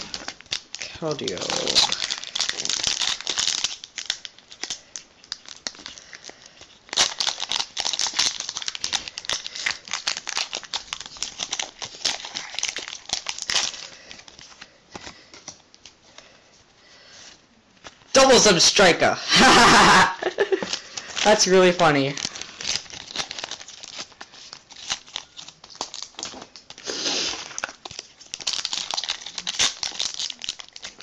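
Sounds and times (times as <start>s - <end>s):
foil wrapper crinkling: 0.0s - 16.4s, 19.4s - 31.0s.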